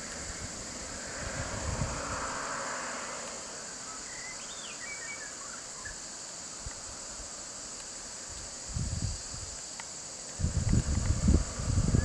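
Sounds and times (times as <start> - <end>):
insects droning: 0.0 - 12.0
bird chirping: 3.9 - 6.0.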